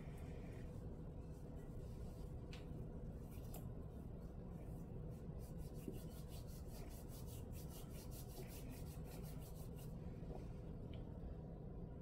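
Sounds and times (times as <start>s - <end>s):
hands rubbing powder in bowl: 4.6s - 10.0s.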